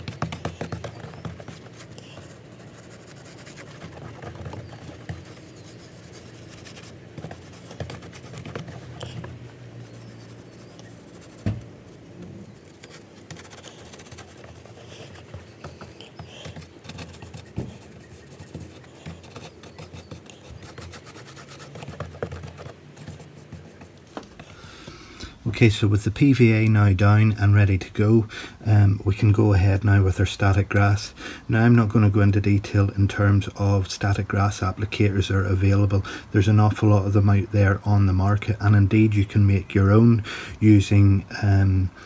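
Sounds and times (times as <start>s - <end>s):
paintbrush bristles scratching: 0.0s - 24.6s.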